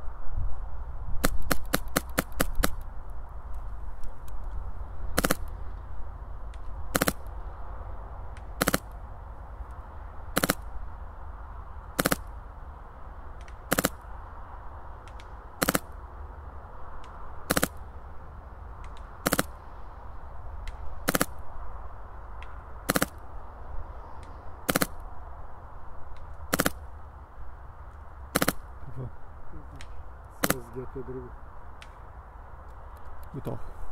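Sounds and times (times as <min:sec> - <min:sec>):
steady low rumble: 0:00.0 - 0:33.9
airsoft rifle shots popping: 0:01.2 - 0:02.8, 0:05.1 - 0:05.6, 0:06.5 - 0:07.3, 0:08.4 - 0:09.0, 0:10.3 - 0:10.7, 0:12.0 - 0:12.3, 0:13.4 - 0:14.1, 0:15.0 - 0:16.0, 0:17.0 - 0:17.8, 0:18.8 - 0:19.6, 0:20.6 - 0:21.4, 0:22.4 - 0:23.2, 0:24.2 - 0:25.0, 0:26.2 - 0:26.9, 0:28.3 - 0:28.7, 0:29.8 - 0:30.8.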